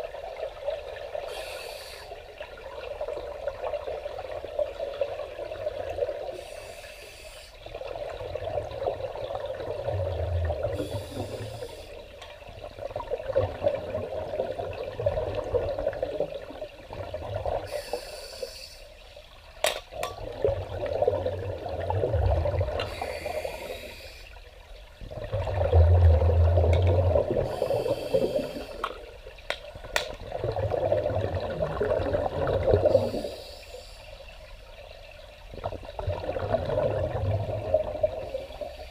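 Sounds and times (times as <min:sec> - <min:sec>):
regulator inhale hiss: 0:01.3 - 0:02.2, 0:06.3 - 0:07.6, 0:10.8 - 0:12.1, 0:17.7 - 0:19.0, 0:22.8 - 0:24.4, 0:27.5 - 0:29.0, 0:32.8 - 0:34.3
exhaled bubbles rumbling: 0:07.6 - 0:17.9, 0:20.0 - 0:23.8, 0:24.6 - 0:33.4, 0:34.5 - 0:38.9.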